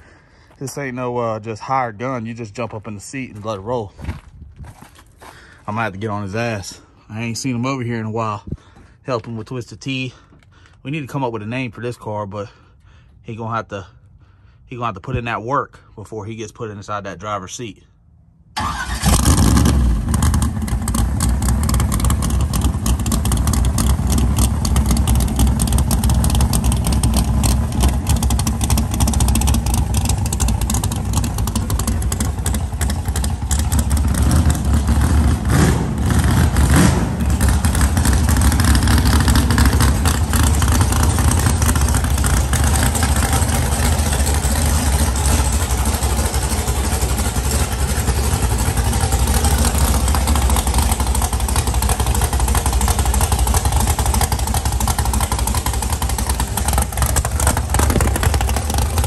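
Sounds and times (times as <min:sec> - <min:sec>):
loud vee eight engine idling: 0:18.6 - 0:59.0.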